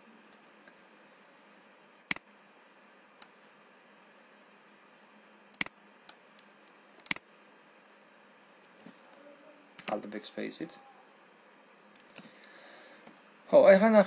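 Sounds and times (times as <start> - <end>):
low steady hiss: 0.0 - 14.0
computer mouse clicking: 5.5 - 7.2, 11.9 - 12.3.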